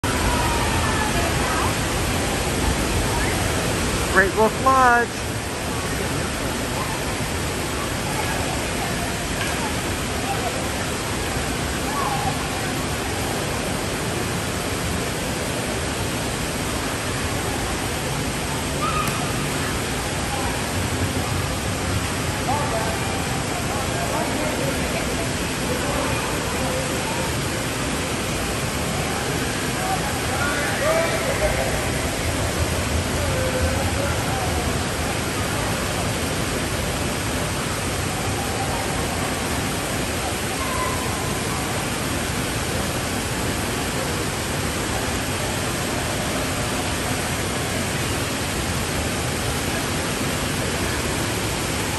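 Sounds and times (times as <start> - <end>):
running and splashing water: 0.0 - 51.9
faint voices: 16.9 - 48.5.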